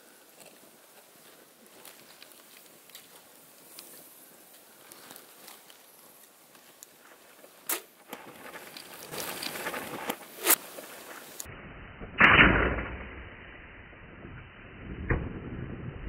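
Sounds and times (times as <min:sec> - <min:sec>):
bow shot crack: 0:07.6 - 0:08.5, 0:09.2 - 0:13.4, 0:14.1 - 0:16.0
arrow rush: 0:07.7 - 0:13.2.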